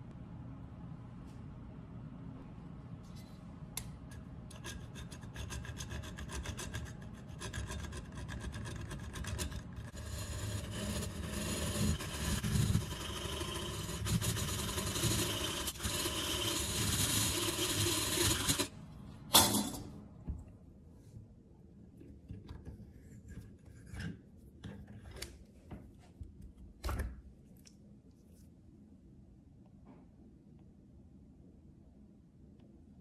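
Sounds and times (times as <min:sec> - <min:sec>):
hacksaw sawing metal: 0:09.2 - 0:18.7.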